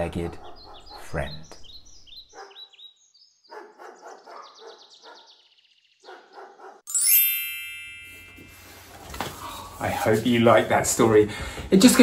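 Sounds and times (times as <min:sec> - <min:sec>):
dogs barking and yapping: 0:00.0 - 0:01.3, 0:02.2 - 0:06.9
bird trilling: 0:01.6 - 0:06.6
bright ringing ding: 0:06.9 - 0:09.0.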